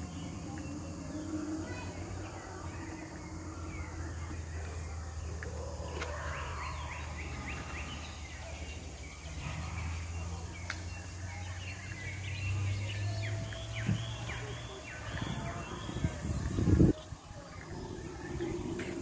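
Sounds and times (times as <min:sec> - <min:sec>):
birds chirping: 0:00.0 - 0:19.0
steady low rumble: 0:15.2 - 0:19.0.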